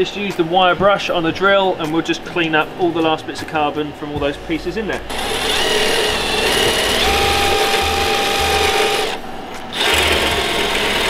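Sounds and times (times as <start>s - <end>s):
drill spinning wire brush: 5.1s - 11.0s.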